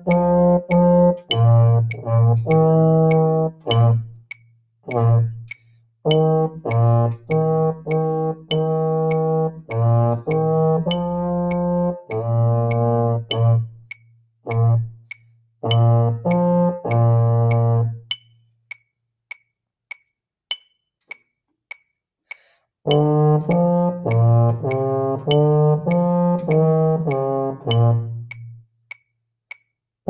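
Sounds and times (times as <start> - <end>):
baritone horn playing: 0.0 - 4.2, 4.8 - 18.1, 22.8 - 28.3
metronome clicking: 0.0 - 29.9.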